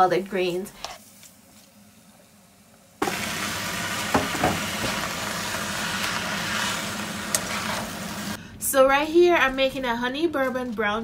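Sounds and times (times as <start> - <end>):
greens sizzling in hot oil: 3.0 - 8.4.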